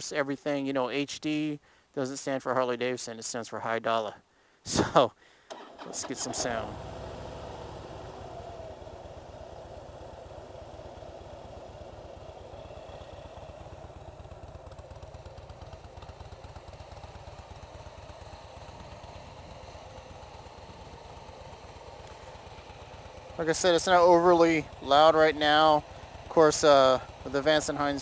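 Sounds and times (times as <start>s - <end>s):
motorcycle engine idling: 6.3s - 28.0s.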